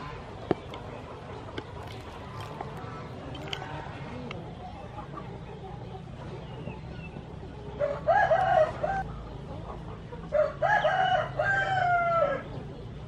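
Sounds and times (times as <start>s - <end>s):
rooster crowing: 7.8s - 9.0s, 10.3s - 12.4s.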